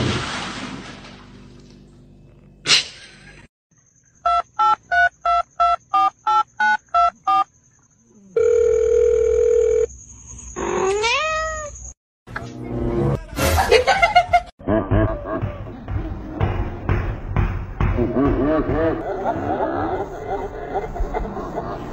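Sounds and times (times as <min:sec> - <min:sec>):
telephone ringing tone: 0:08.4 - 0:09.9.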